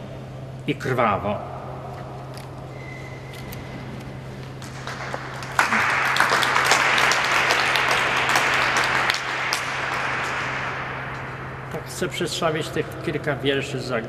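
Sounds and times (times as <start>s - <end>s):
audience applauding: 4.6s - 11.1s.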